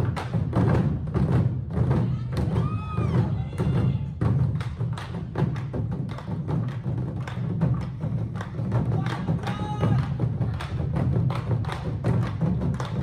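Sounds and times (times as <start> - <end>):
drums struck in unison: 0.0 - 13.0.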